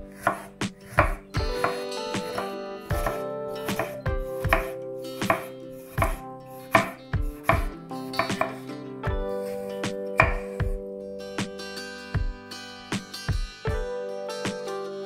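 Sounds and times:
knife knocking on cutting board: 0.3s - 6.2s, 6.8s - 8.6s, 10.2s - 10.8s.

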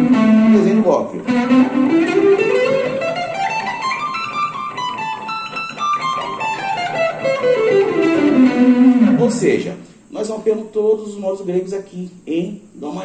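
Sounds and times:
electric guitar scale run: 0.0s - 9.4s.

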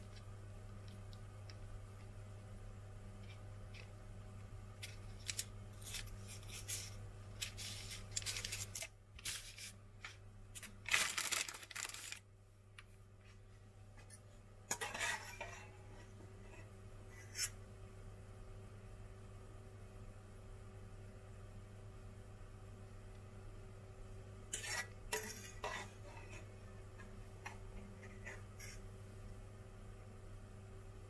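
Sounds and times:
parchment paper crinkling: 4.8s - 12.3s.

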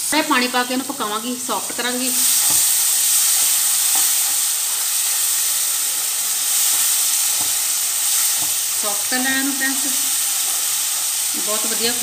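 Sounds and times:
masala sizzling in a pan: 0.0s - 12.0s.

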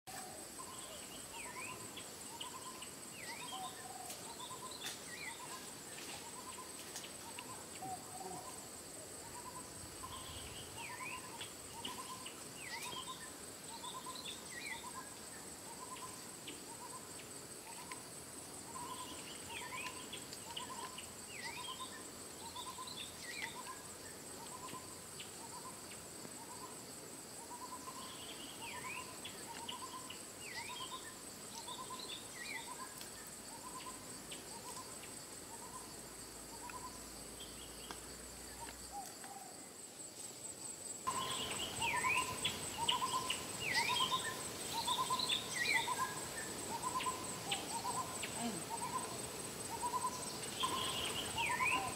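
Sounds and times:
insects buzzing: 0.1s - 51.9s
birds chirping: 41.1s - 51.9s.

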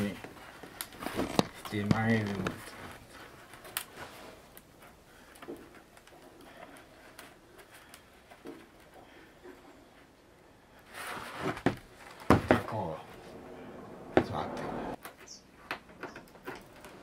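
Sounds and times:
bamboo basket creaking: 0.0s - 10.1s
basket rustling scrape: 10.8s - 12.1s.

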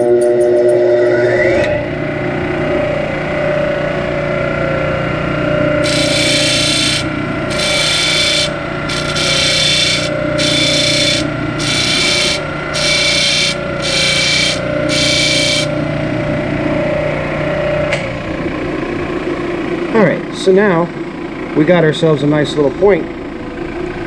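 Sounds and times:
disc sander running: 1.8s - 18.0s
electrode grinding on sanding disc: 5.8s - 15.8s.

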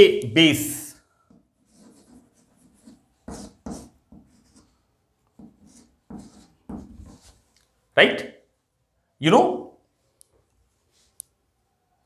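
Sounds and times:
chalk scratching on blackboard: 1.3s - 4.8s, 5.4s - 7.5s.

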